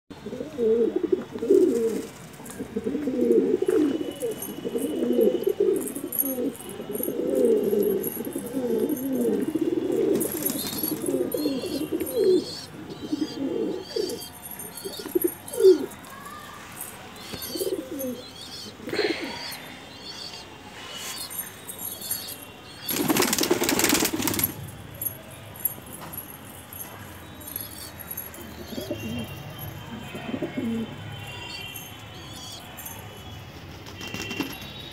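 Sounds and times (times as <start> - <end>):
pigeons cooing: 0.2 - 16.0, 17.2 - 20.4, 27.5 - 29.4
wings fluttering: 22.9 - 24.6.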